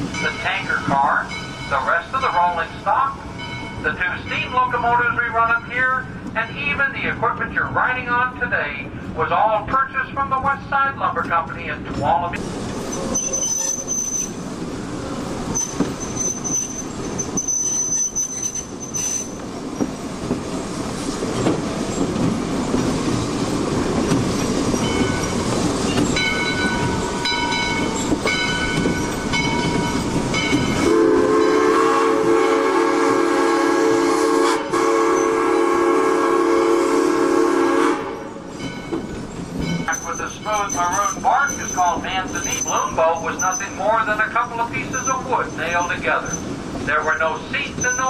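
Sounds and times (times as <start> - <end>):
wheel flanges squealing: 12.8 - 14.5, 15.5 - 20.0, 38.5 - 48.0
train wheel clatter: 15.4 - 32.4, 38.5 - 48.0
steam locomotive whistle: 30.8 - 38.4.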